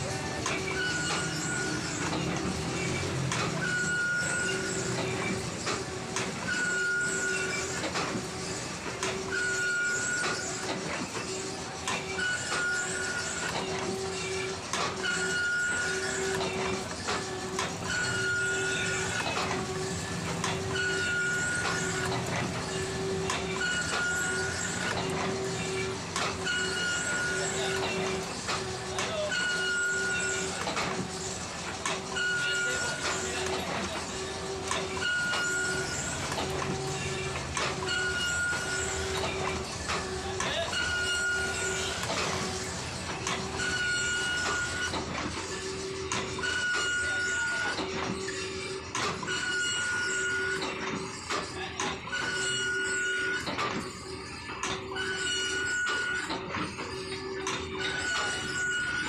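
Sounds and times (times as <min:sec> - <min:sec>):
high ringing tone: 0:03.6 - 0:04.8, 0:06.5 - 0:07.7, 0:17.8 - 0:19.3, 0:20.6 - 0:22.1, 0:29.3 - 0:30.5, 0:52.1 - 0:59.0.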